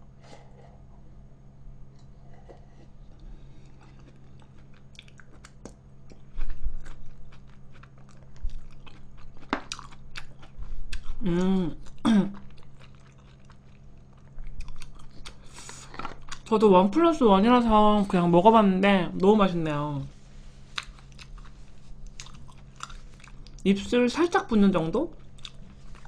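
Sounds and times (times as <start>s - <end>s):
person chewing food: 1.9s - 16.5s, 20.6s - 23.6s, 25.1s - 26.0s.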